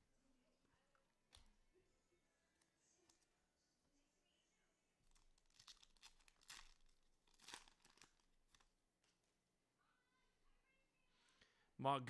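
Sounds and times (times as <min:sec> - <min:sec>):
cellophane wrapper tearing: 0:05.1 - 0:08.7.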